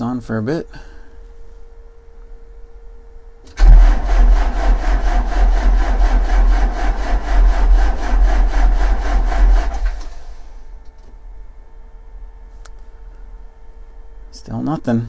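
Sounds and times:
starter cranking diesel engine: 0:03.5 - 0:10.5.

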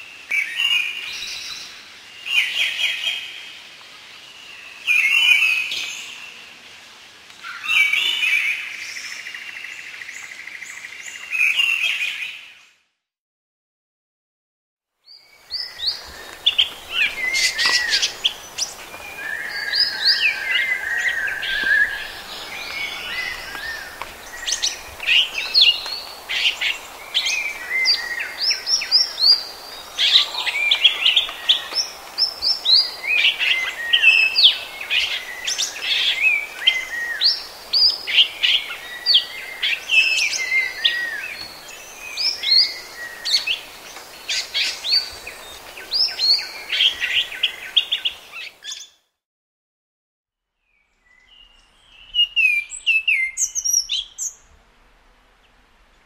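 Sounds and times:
background hiss: 0:15.1 - 0:48.8.

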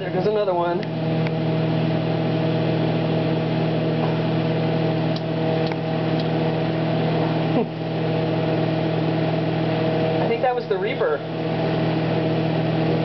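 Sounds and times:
microwave oven humming: 0:00.0 - 0:13.0
short falling whine: 0:00.0 - 0:13.0.

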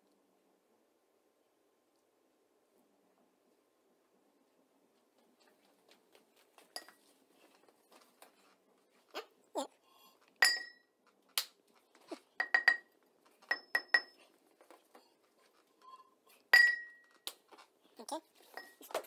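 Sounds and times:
glass striking hard floor: 0:10.4 - 0:10.8, 0:12.4 - 0:12.9, 0:16.5 - 0:17.1.

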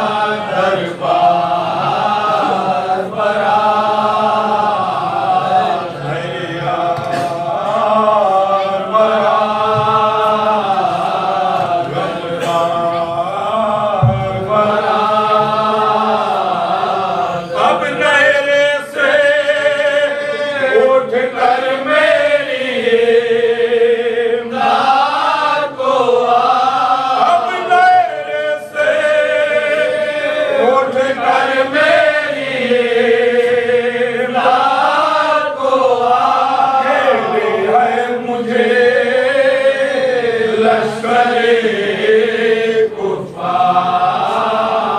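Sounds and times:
men chanting in unison: 0:00.0 - 0:44.9.

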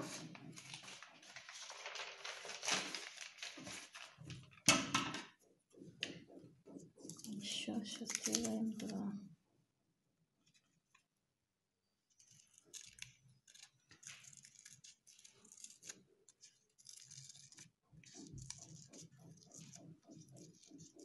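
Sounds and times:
paper rustling: 0:00.0 - 0:04.6, 0:12.1 - 0:21.0
scissors snipping paper: 0:08.0 - 0:09.0, 0:12.1 - 0:21.0.

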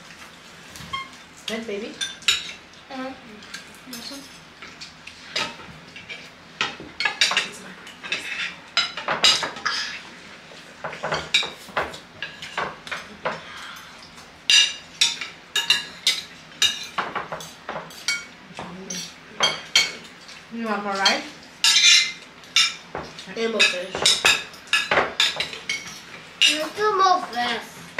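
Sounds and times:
cutlery clinking on plates: 0:03.4 - 0:09.9, 0:10.8 - 0:13.5, 0:14.5 - 0:20.4, 0:21.0 - 0:26.7.

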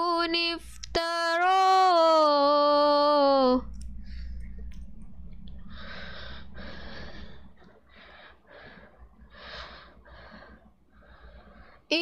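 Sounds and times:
low electrical hum: 0:00.0 - 0:12.0
breathing into microphone: 0:05.5 - 0:11.9.

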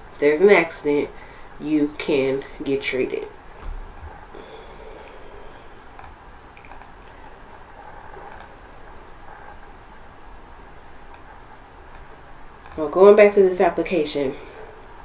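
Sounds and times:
faint steady hiss: 0:00.0 - 0:15.0
sharp computer clicks: 0:05.9 - 0:07.1, 0:08.3 - 0:08.5, 0:11.9 - 0:12.9.

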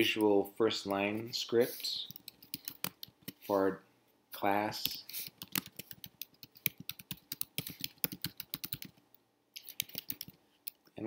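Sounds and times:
keyboard typing clicks: 0:05.4 - 0:09.0.

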